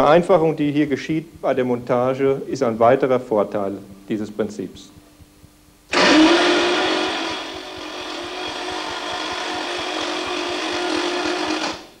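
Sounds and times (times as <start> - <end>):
engine whirring and ticking: 5.4 - 12.0.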